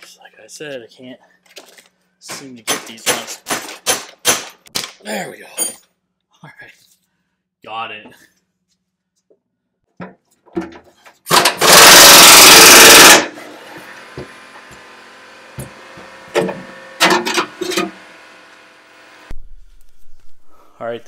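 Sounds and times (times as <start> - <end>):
impact wrench hammering: 2.3 - 4.7, 11.3 - 13.3
metal clanks and knocks: 15.6 - 17.9.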